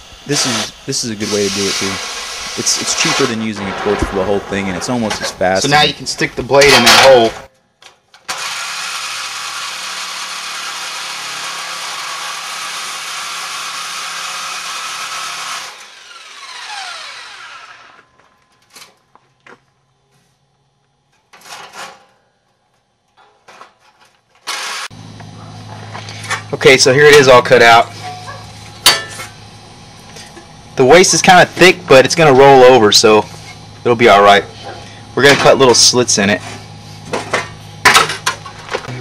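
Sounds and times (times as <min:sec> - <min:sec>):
jigsaw cutting steel sheet: 0:00.4 - 0:03.4, 0:08.3 - 0:18.0, 0:24.4 - 0:24.9
low hum: 0:02.0 - 0:07.6, 0:24.9 - 0:35.2.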